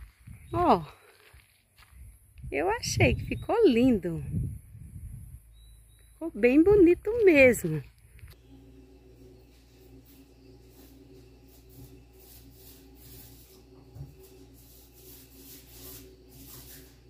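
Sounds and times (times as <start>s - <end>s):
steady low hum: 4.2s - 17.0s
rubbing and rustling: 10.7s - 17.0s.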